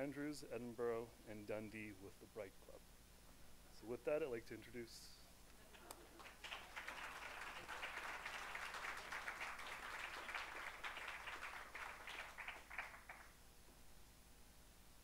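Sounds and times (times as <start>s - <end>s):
audience applauding: 5.7s - 13.4s.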